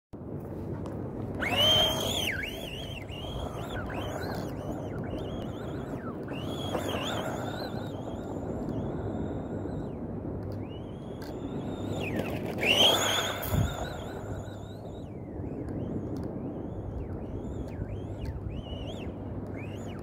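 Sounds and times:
electric motor whining: 1.4 - 9.3, 11.7 - 14.4.

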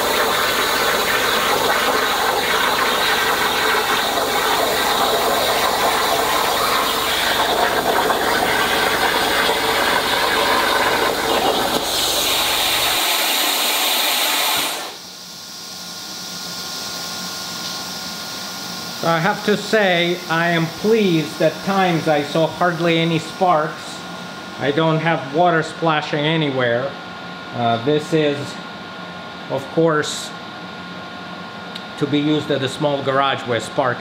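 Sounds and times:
plasma torch arc hissing: 10.7 - 15.1.

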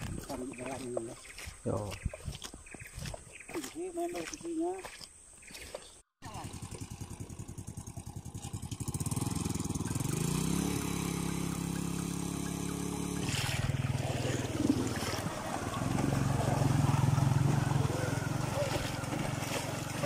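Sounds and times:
water splashing around wheels: 0.0 - 20.0
motorcycle engine revving: 6.2 - 20.0.

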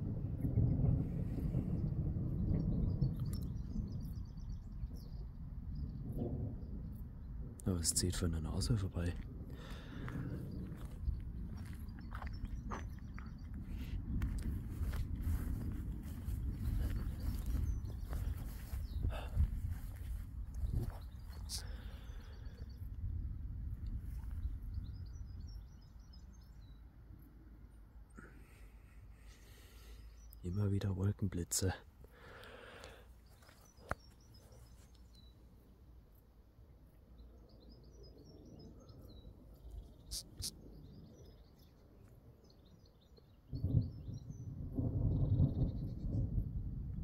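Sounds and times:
wind buffeting microphone: 0.0 - 26.9, 37.2 - 47.0
small birds chirping: 1.8 - 23.3, 23.9 - 46.4
loud low rumble: 9.2 - 25.8.

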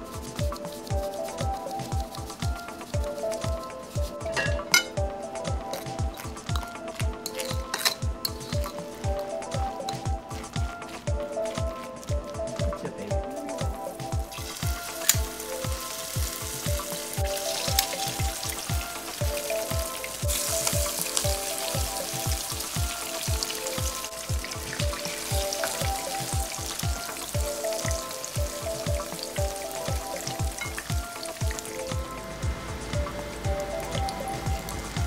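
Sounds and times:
batter sizzling in oil: 0.0 - 12.1, 13.6 - 35.0
background music with beat: 0.0 - 35.0.

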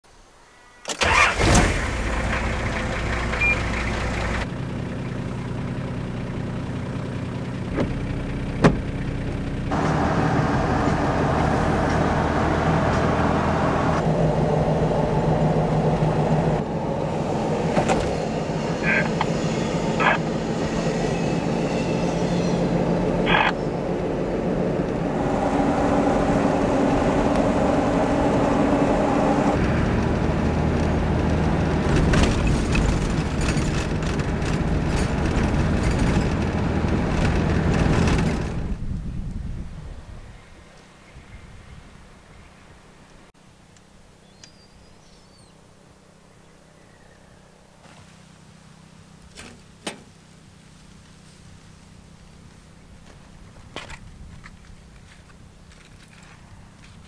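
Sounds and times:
engine and road noise in cabin: 0.3 - 57.0
engine cranking and starting: 0.8 - 4.5, 29.5 - 38.8.

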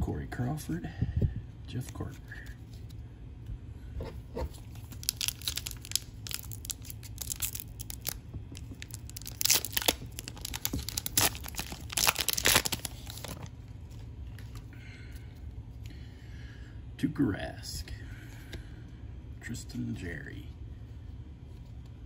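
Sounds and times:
wrapper crinkling and tearing: 4.5 - 13.5.

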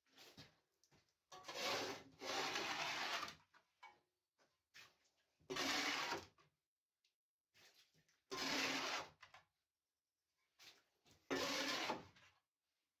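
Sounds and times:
shovel scraping sludge off steel: 1.4 - 3.4, 5.5 - 6.4, 7.6 - 9.2, 11.3 - 12.2.

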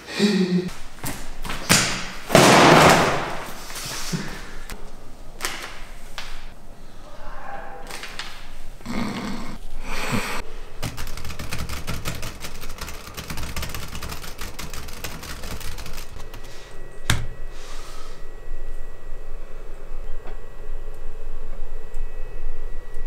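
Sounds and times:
fast typing on keyboard: 10.8 - 16.5.

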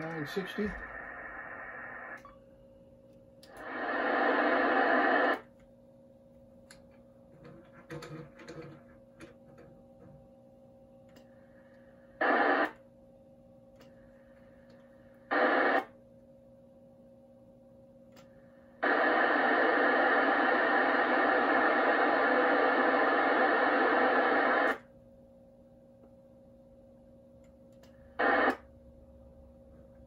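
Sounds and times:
radio receiver static: 0.0 - 2.2, 3.5 - 5.5, 12.2 - 12.8, 15.3 - 15.9, 18.8 - 24.8, 28.2 - 28.7
faint steady hum: 0.0 - 30.0.

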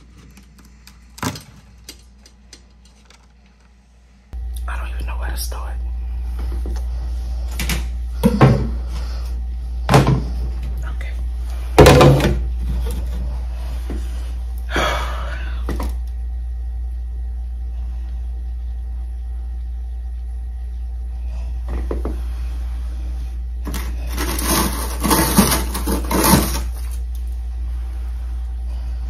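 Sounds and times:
steady low hum: 0.0 - 29.0
scraping clatter of hard objects: 23.6 - 27.0.

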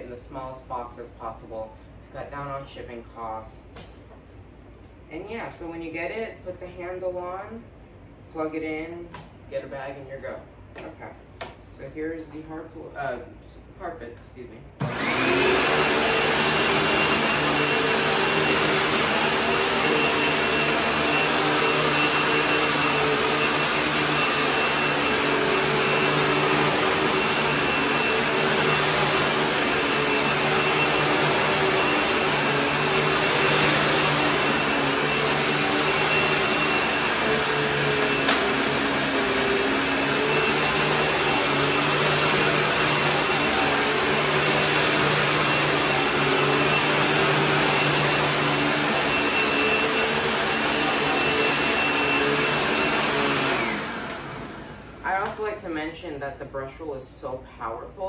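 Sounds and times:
upright vacuum cleaner running: 14.8 - 55.6.

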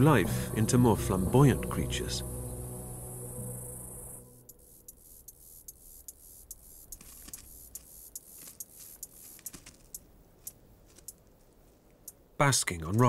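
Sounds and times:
lizard claws ticking on rock: 6.5 - 11.2.

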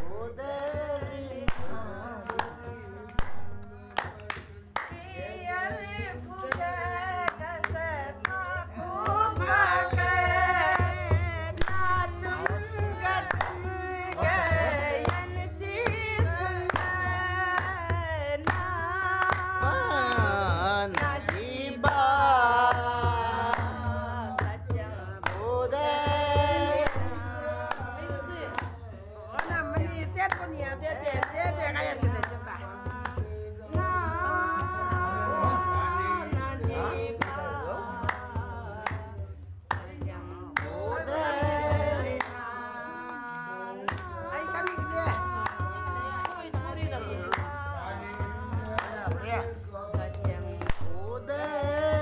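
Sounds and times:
hand drum playing: 0.0 - 22.0, 43.9 - 52.0
woman singing folk song: 0.0 - 52.0
clapping along: 0.4 - 52.0.

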